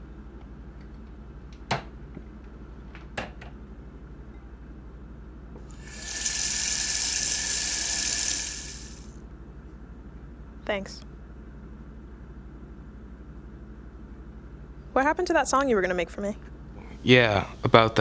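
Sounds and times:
faucet running into glass: 0:05.7 - 0:09.1.

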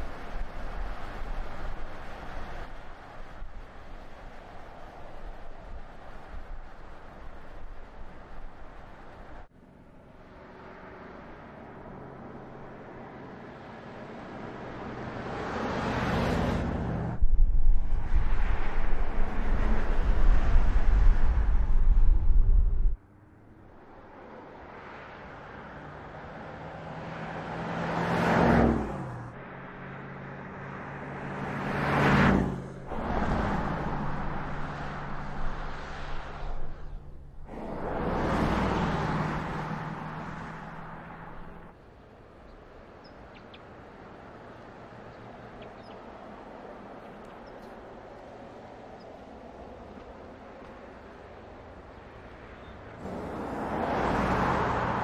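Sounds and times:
car passing by: 0:10.1 - 0:17.2, 0:23.7 - 0:41.8, 0:43.4 - 0:55.0
low rumble: 0:16.9 - 0:23.0
small birds chirping: 0:42.4 - 0:43.8, 0:45.0 - 0:46.2, 0:47.0 - 0:47.9, 0:52.5 - 0:53.0.

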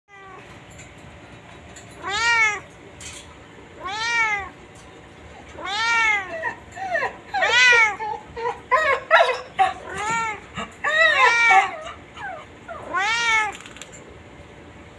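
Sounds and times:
cat meowing: 0:02.0 - 0:02.7, 0:03.8 - 0:04.6, 0:05.5 - 0:06.5, 0:07.4 - 0:08.0, 0:09.8 - 0:10.4, 0:11.1 - 0:13.8.

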